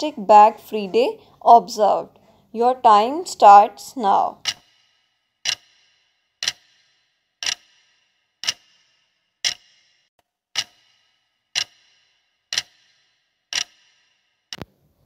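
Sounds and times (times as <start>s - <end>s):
countdown timer clock ticking: 2.8s - 10.0s, 10.6s - 14.6s.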